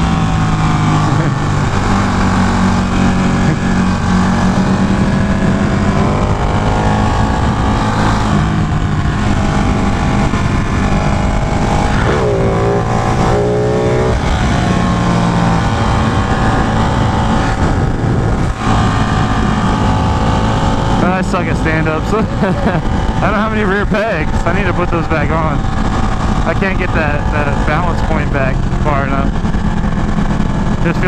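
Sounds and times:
motorcycle engine at speed: 0.0 - 31.0
wind rush: 0.0 - 31.0.

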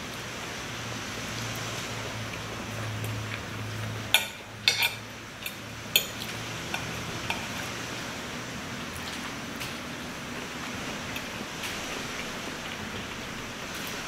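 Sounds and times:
cutlery clinking on a plate: 4.2 - 6.1.

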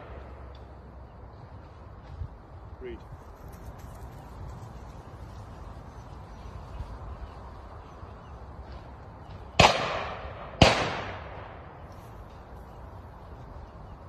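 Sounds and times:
shotgun shots with echo: 9.5 - 11.7.

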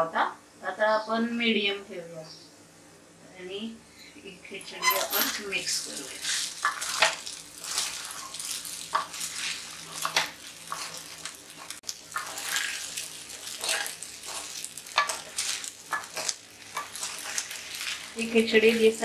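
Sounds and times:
spatula scraping a pan: 4.8 - 19.0
food sizzling: 5.1 - 19.0.

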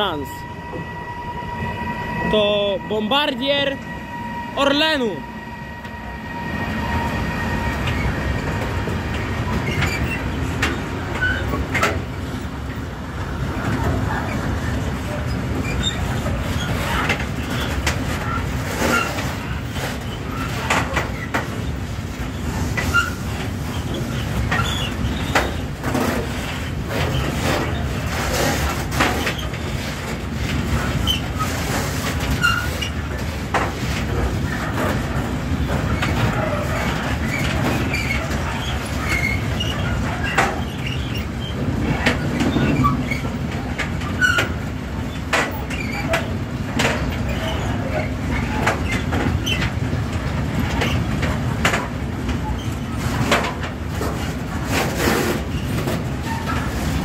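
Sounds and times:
short high squeaks: 0.0 - 8.6
train wheels rumbling on rails: 0.0 - 57.0
wheels clacking over rail joints: 7.0 - 57.0.

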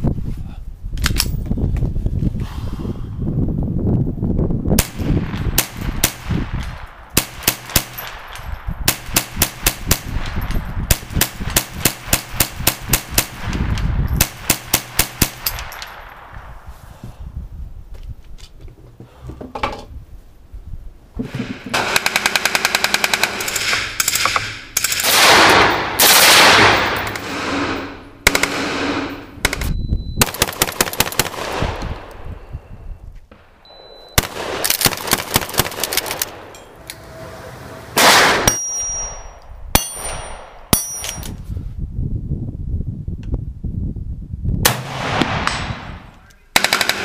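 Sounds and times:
loud gun blasts: 4.8 - 16.6, 21.4 - 32.0, 34.2 - 36.5, 38.0 - 40.9, 44.6 - 47.0
rapid gunfire bursts: 21.8 - 26.8, 30.2 - 31.6, 34.2 - 36.2, 46.6 - 47.0
single sharp gunshots: 23.4 - 29.6, 34.2 - 36.5, 38.0 - 38.5, 44.6 - 47.0.

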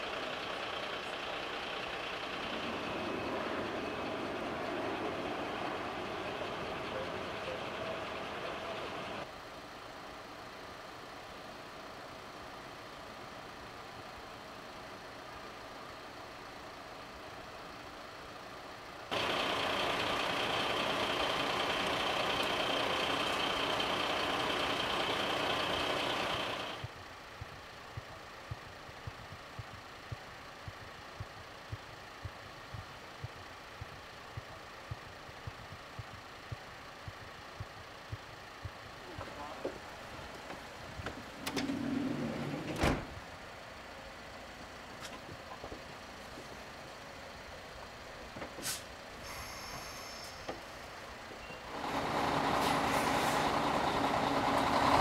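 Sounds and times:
loud steady machine noise: 0.0 - 9.3, 19.1 - 40.8, 49.2 - 55.0
vehicle engines idling: 0.0 - 55.0
light regular ticking: 26.8 - 39.0.

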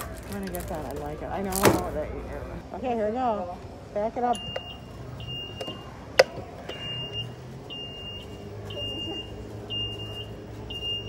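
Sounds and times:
reversing beeper: 6.6 - 11.0.

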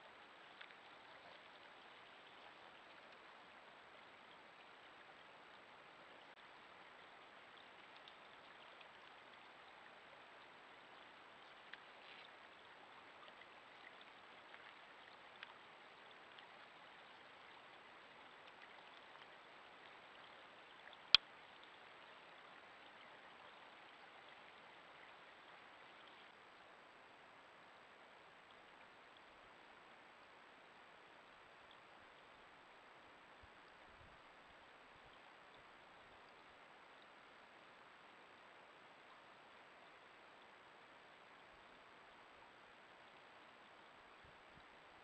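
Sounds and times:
faint ticks: 0.0 - 26.7
faint microphone hiss: 0.0 - 45.0.

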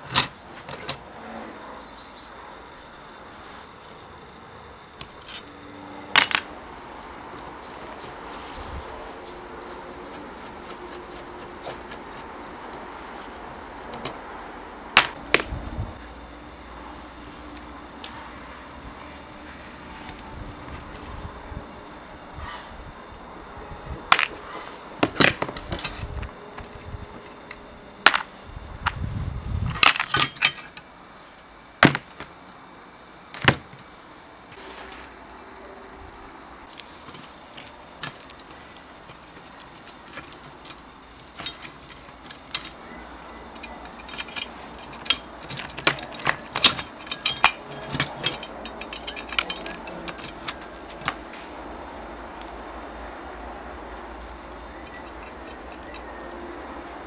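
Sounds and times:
steel parts clinking: 5.0 - 6.5, 15.0 - 15.4, 29.7 - 30.9, 36.1 - 53.0, 54.1 - 57.0.

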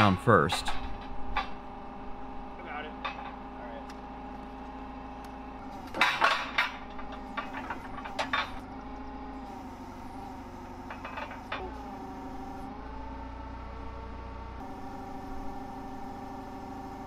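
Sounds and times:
forklift engine idling: 0.0 - 17.0
metal parts clanking: 5.8 - 8.6, 10.9 - 11.6.

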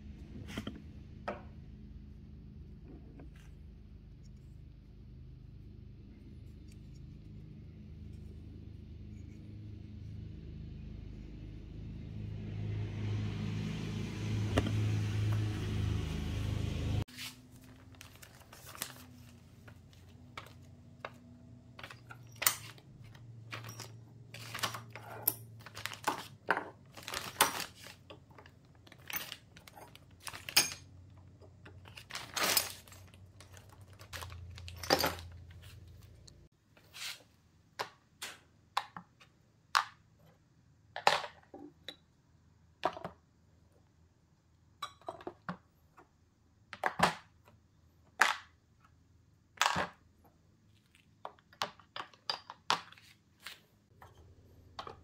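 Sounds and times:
plastic bag rustling: 17.1 - 20.6, 25.6 - 28.0, 31.9 - 36.0
metal parts clinking on workbench: 21.8 - 27.9, 29.0 - 30.9, 34.5 - 35.4.

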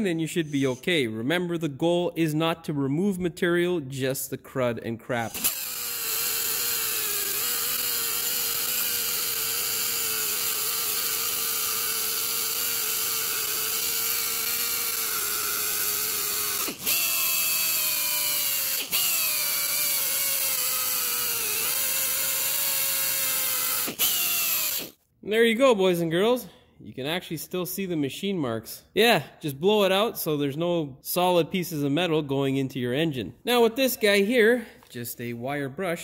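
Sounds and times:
die grinder whining: 5.2 - 25.0.

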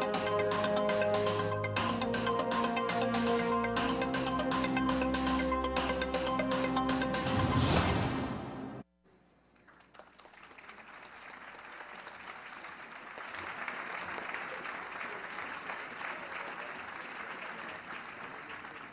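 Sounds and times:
large crowd applauding: 9.6 - 18.9.

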